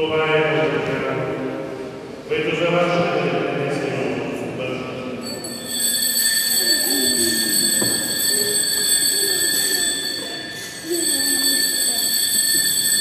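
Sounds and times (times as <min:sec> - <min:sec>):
altar bells ringing: 0:05.2 - 0:13.0.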